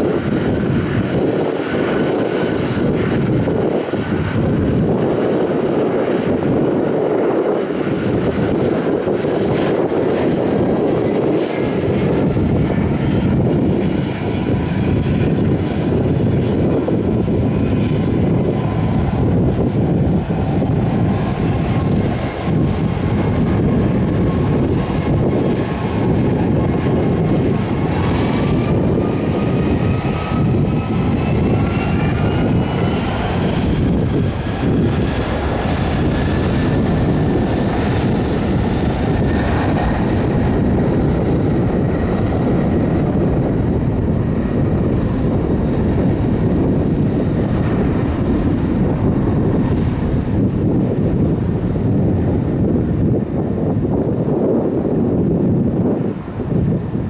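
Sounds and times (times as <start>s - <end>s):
aircraft engines rumbling: 0.0s - 57.0s.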